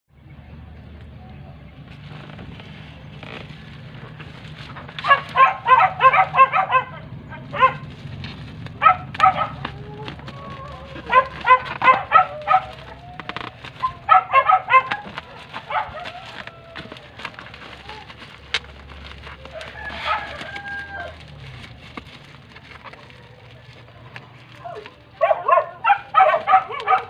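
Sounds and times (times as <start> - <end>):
plastic mailer crinkling: 1.9 - 6.8, 7.5 - 27.0
dog barking: 5.0 - 8.0, 8.8 - 17.0, 19.8 - 21.1, 24.6 - 27.0.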